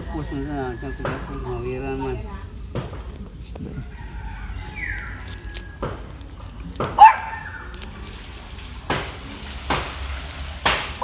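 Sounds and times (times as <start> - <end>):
dog barking: 6.9 - 7.6.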